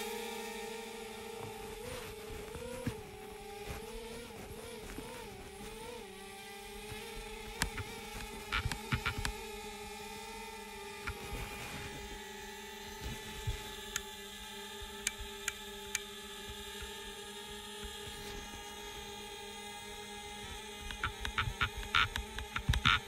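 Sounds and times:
drone propellers whining: 0.0 - 23.0
faint clicks: 7.5 - 9.4, 20.8 - 23.0.

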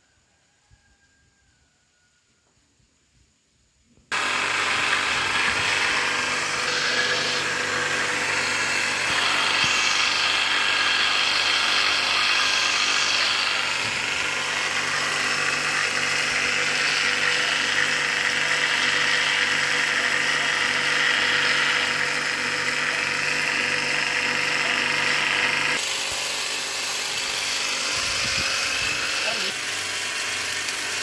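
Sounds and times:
loud pump hiss: 4.1 - 21.8
electric motor hum: 4.1 - 31.0.

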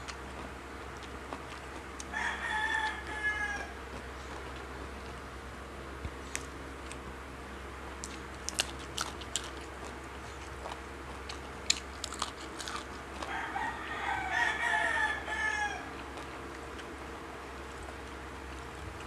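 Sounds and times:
chewing raw vegetables: 0.0 - 19.0
rooster crowing: 2.0 - 4.0, 13.2 - 16.2.

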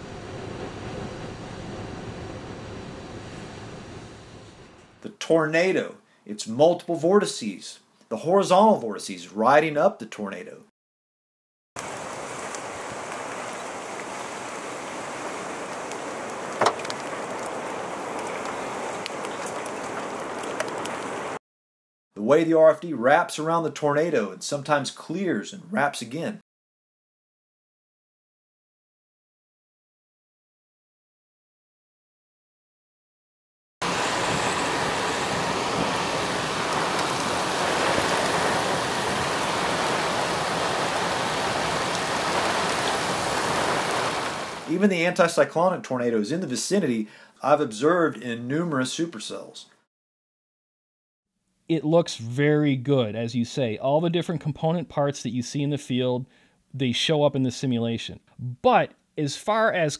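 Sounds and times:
rushing wind and rain: 0.0 - 4.8, 11.8 - 21.4, 33.8 - 44.9
small ticks: 16.6 - 21.1.

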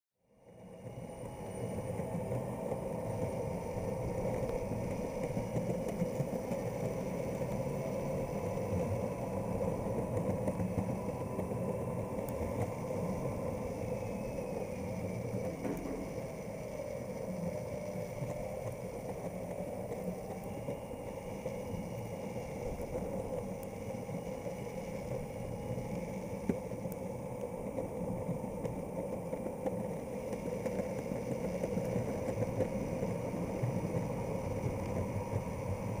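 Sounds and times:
skateboard wheels rumbling: 0.5 - 36.0
electric motor whining: 0.9 - 28.1.

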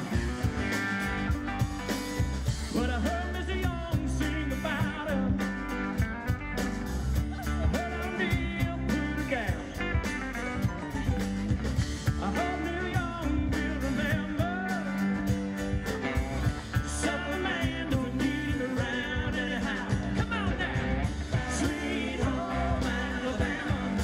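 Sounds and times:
live band playing: 0.0 - 24.0.

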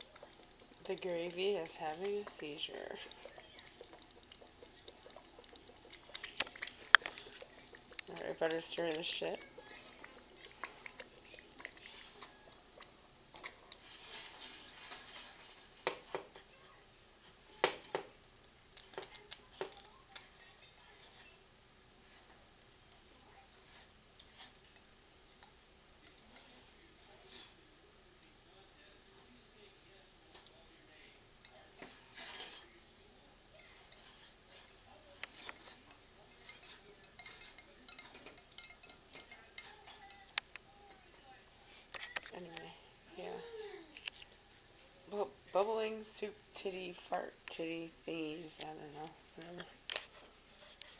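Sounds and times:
gravy bubbling and popping: 0.0 - 26.9
whisk clicking against glass: 35.3 - 40.2.

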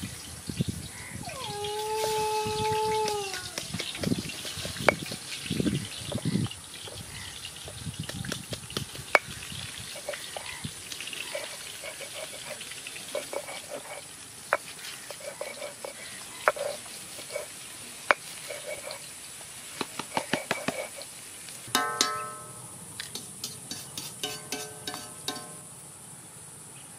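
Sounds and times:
stone roller gritty scraping: 3.5 - 7.1, 8.3 - 19.1, 19.8 - 21.1
stone-on-stone knocks: 21.7 - 22.6.

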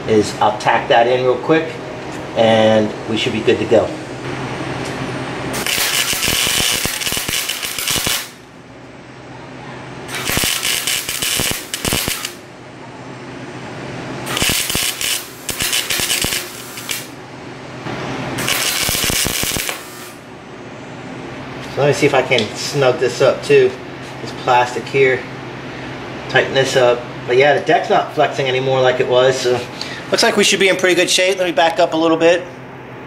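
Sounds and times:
welding arc crackling: 5.5 - 8.5, 10.1 - 12.4, 14.2 - 17.2, 18.3 - 20.2.

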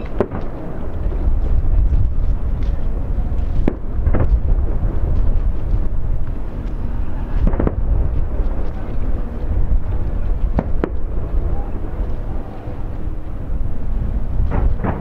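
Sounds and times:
sharp firework bangs: 0.0 - 0.6, 7.4 - 7.9
distant fireworks rumble: 0.0 - 15.0.

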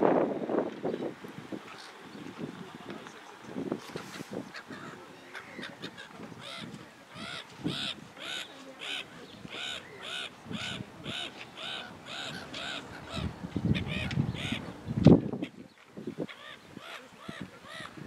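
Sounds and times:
gull calling harshly: 4.5 - 14.7.

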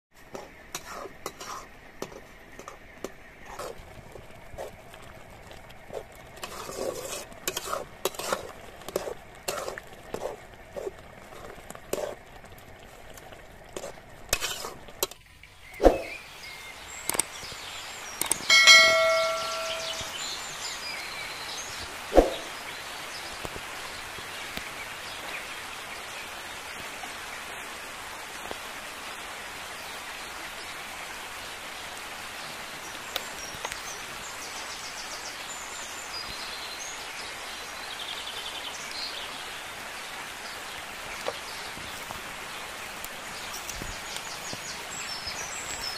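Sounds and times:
outdoor background noise: 0.1 - 45.9
metal ladle scraping a pan: 0.4 - 2.8, 6.4 - 10.9, 13.8 - 15.2
sharp click: 18.2 - 18.5
ringing chime: 18.5 - 20.3.

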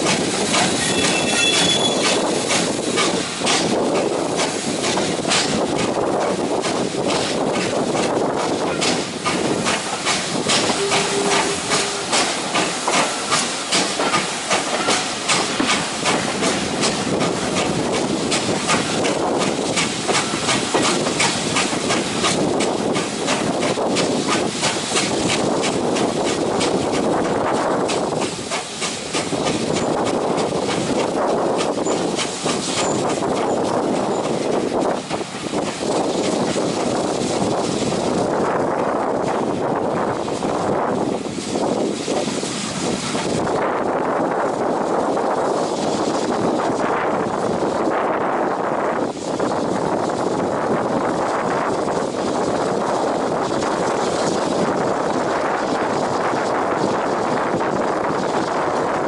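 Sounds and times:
wheels clicking over rail joints: 0.0 - 38.2
train running rumble: 0.0 - 59.0.

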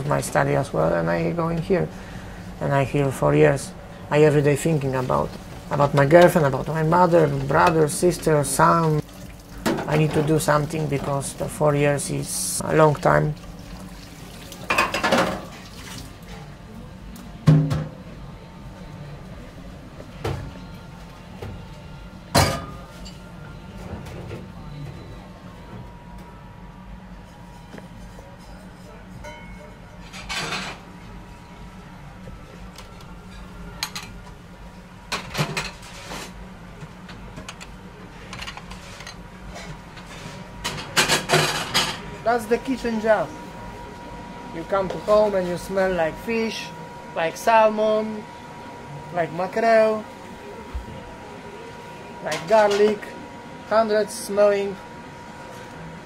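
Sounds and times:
steady low hum: 0.0 - 56.0
dishes clanking in metal sink: 14.6 - 16.0.

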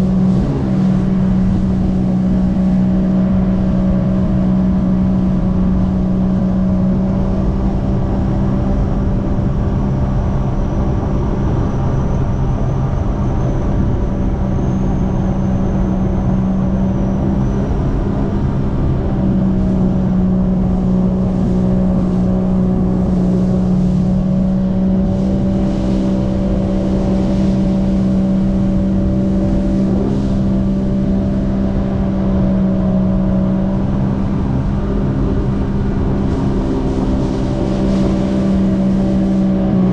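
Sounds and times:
jet ski engine droning: 0.0 - 39.9
water spray rushing: 35.4 - 39.7.

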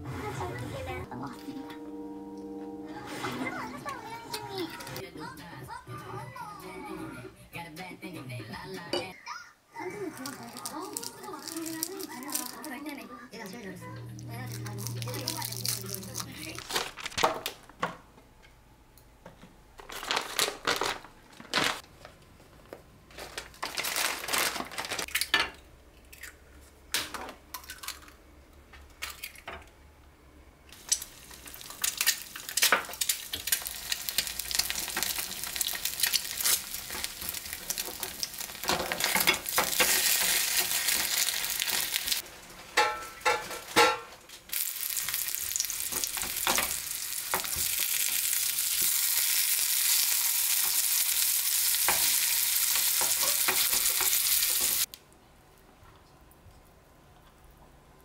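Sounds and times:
spatula scraping pan: 0.0 - 1.1
food sizzling in a frying pan: 10.2 - 12.8, 30.8 - 43.7, 44.5 - 54.9.

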